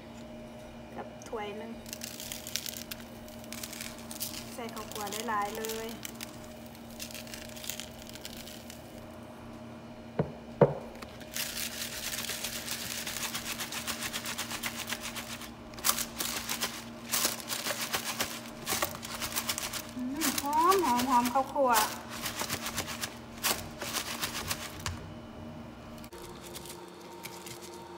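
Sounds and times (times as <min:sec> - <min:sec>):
powder pouring: 0:01.8 - 0:09.0, 0:11.1 - 0:24.9
fish rustling in plastic tub: 0:11.2 - 0:24.9.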